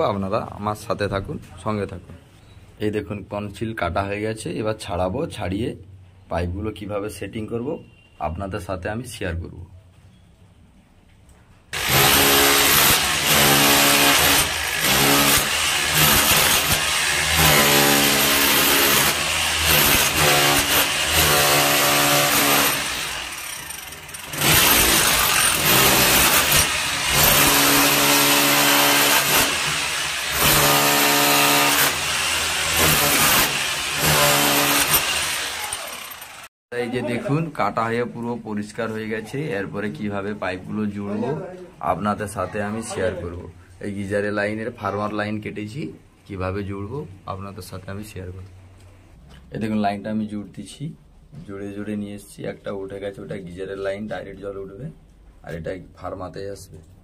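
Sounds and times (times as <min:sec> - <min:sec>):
electric chipping hammer chiselling brick: 0:11.7 - 0:36.5.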